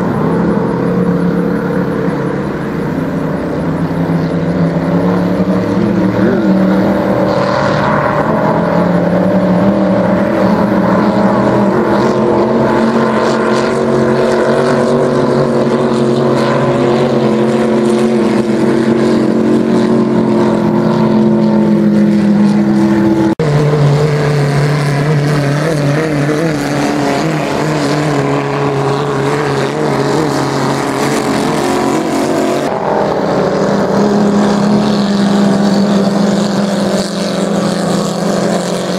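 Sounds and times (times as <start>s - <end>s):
race boat engine at speed: 0.0s - 38.9s
rough low boat engine: 0.0s - 38.9s.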